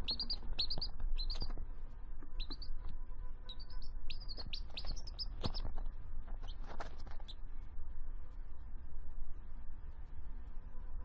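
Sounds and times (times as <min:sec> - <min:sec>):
baby chick peeping: 0:00.0 - 0:07.4.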